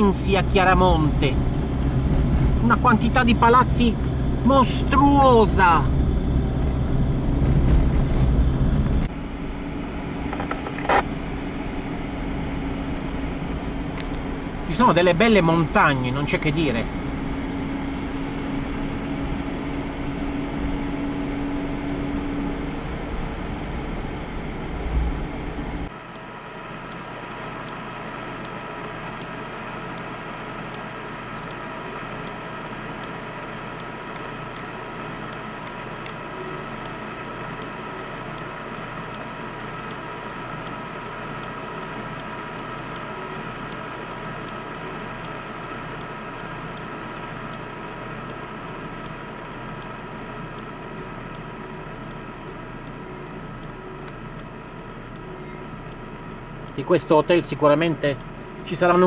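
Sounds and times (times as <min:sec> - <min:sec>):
radio jamming buzz: 0:10.2 - 0:11.3
sharp ticks: 0:26.1 - 0:59.0.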